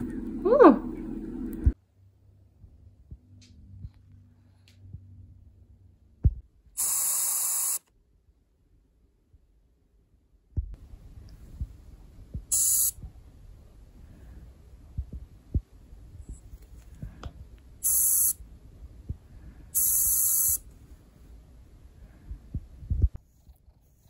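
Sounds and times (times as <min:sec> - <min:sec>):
oxygen hissing through mask: 0:06.8 - 0:07.8, 0:12.5 - 0:13.0, 0:17.8 - 0:18.4, 0:19.8 - 0:20.6.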